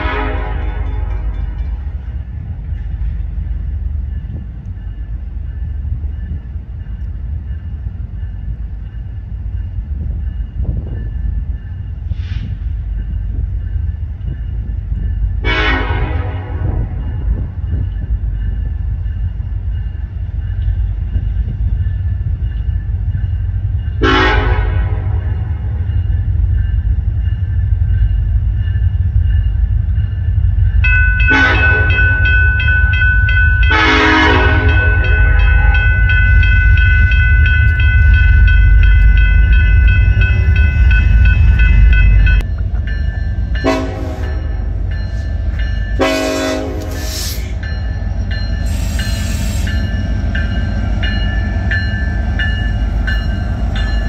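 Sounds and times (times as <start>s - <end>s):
locomotive air horn: 0.0s - 1.3s, 15.4s - 17.0s, 24.0s - 25.4s, 31.3s - 32.0s, 33.7s - 35.9s, 43.6s - 44.5s, 46.0s - 47.4s
low train rumble: 0.0s - 54.0s.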